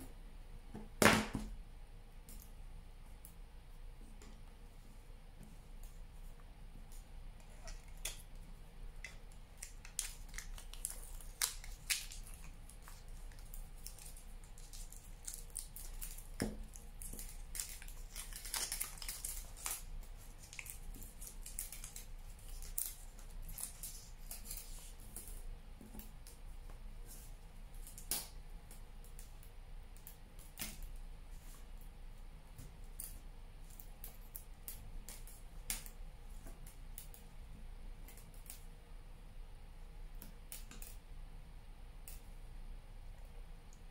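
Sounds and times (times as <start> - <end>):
aluminium foil crinkling: 9.0 - 25.5.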